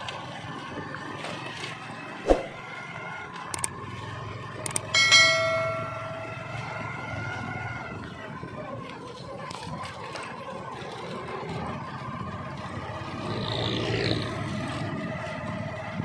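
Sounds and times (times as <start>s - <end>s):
outdoor background noise: 0.0s - 16.0s
quick clicks: 3.5s - 3.7s
bright bell chime: 4.9s - 6.6s.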